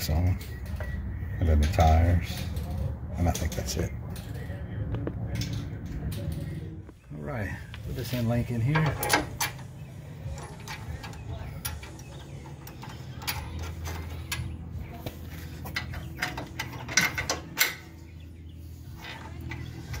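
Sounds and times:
loud metal clicks: 8.7 - 14.6, 15.6 - 18.0.

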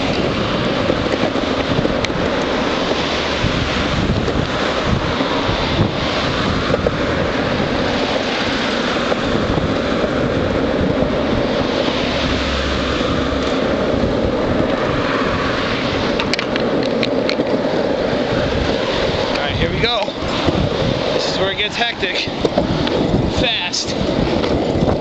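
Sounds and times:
longboard wheels rolling on asphalt: 0.0 - 25.0
wind buffeting microphone: 0.0 - 25.0.

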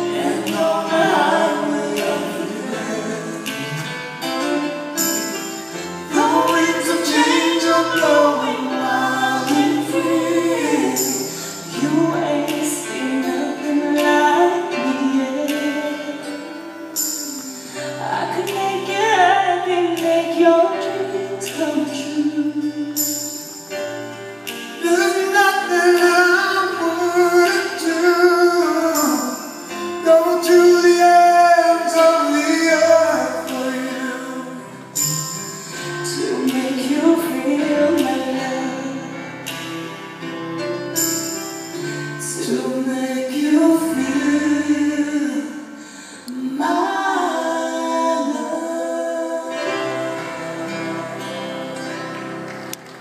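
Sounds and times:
man singing: 0.0 - 5.1, 6.0 - 23.2, 24.7 - 39.5, 42.2 - 51.8
acoustic guitar: 0.0 - 53.0
band playing pop ballad: 0.0 - 53.0
woman singing: 6.1 - 23.0, 36.1 - 39.2, 46.3 - 51.8.

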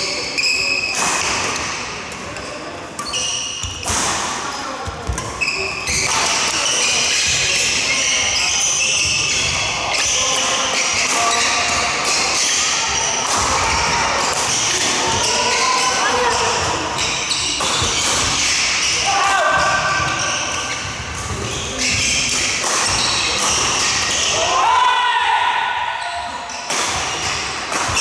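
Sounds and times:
shoes squeaking on floor: 3.0 - 3.8, 5.1 - 10.2, 14.5 - 24.4
racket hitting shuttlecock: 3.0 - 4.4, 20.1 - 24.3, 26.6 - 28.0.

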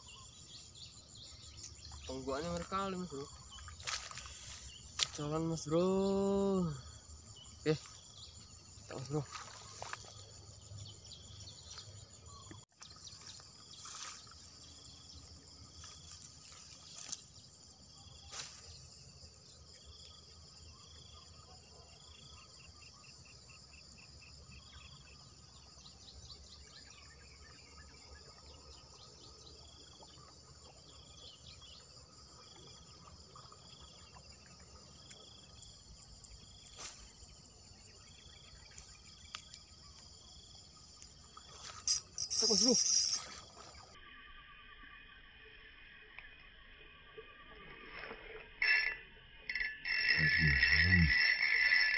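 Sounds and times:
insects chirping: 0.0 - 51.9
bird trills: 41.5 - 44.0, 48.6 - 51.9.

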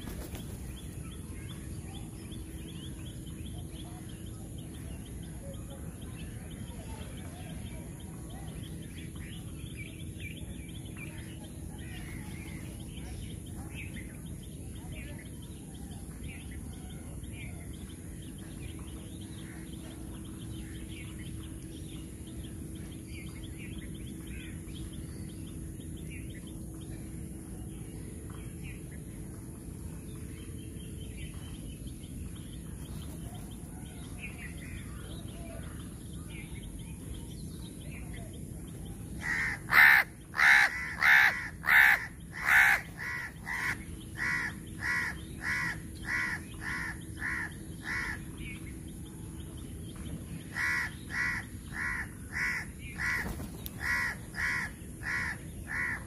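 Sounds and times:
crow cawing: 39.2 - 48.2, 50.6 - 53.2, 53.8 - 56.0.

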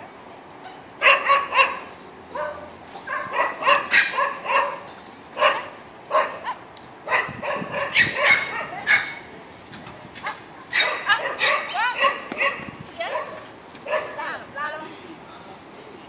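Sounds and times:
dog barking: 0.7 - 4.8, 5.4 - 9.2, 10.2 - 14.2.

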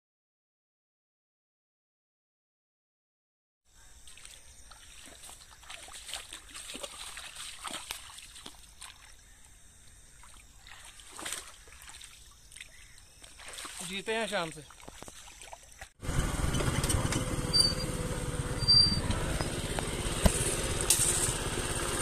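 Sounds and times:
muddy water splashing: 3.8 - 16.0.

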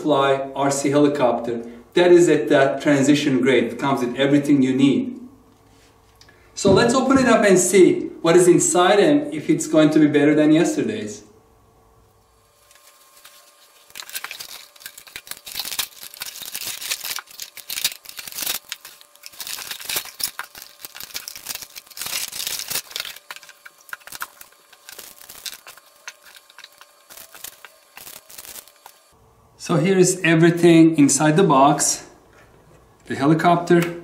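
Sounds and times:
plastic packaging crinkling: 12.5 - 29.1.

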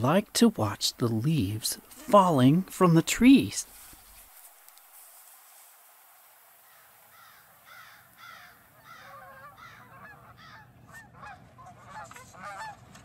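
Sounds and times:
geese honking: 6.7 - 13.0.

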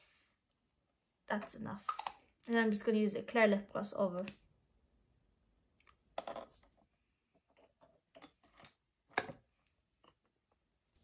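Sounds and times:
small objects clicking and tapping: 5.8 - 6.7.

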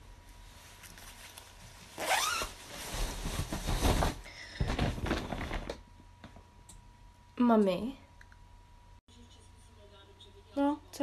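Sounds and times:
clothing rustling: 0.1 - 5.7
plastic bag rustling: 0.4 - 5.8
jacket zipper unzipping: 2.0 - 2.5.

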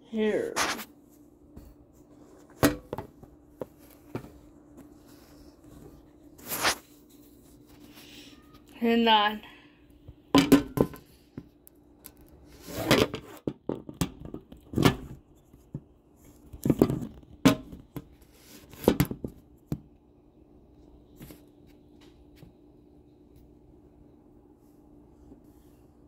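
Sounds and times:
faint steady hum: 0.0 - 26.0
kitchen knocks and scrapes: 2.4 - 4.4.

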